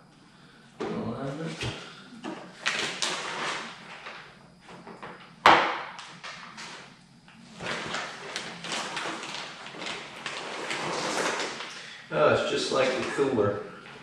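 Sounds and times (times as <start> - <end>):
plastic rustling: 7.5 - 12.0.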